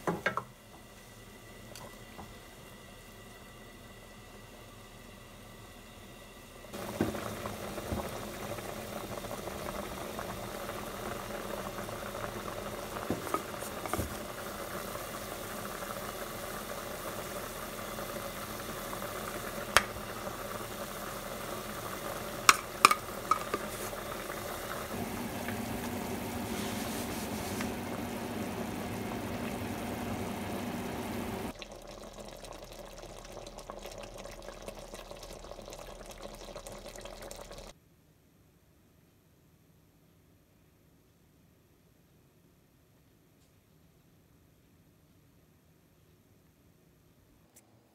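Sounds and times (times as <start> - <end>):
pot of curry boiling: 1.2 - 37.8.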